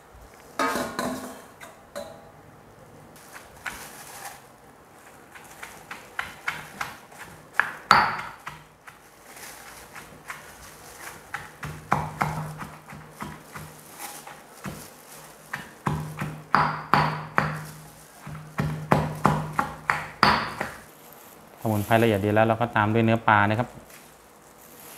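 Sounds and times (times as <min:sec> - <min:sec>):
pestle pounding in a stone mortar: 0:05.3 - 0:09.0, 0:09.8 - 0:20.9.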